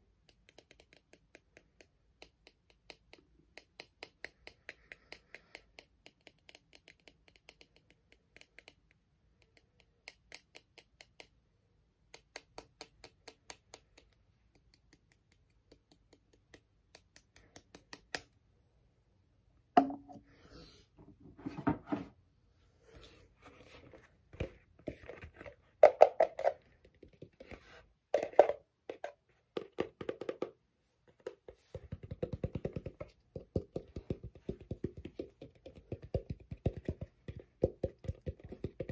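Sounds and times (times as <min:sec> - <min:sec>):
knocks and scrapes: 0:21.0 - 0:22.2.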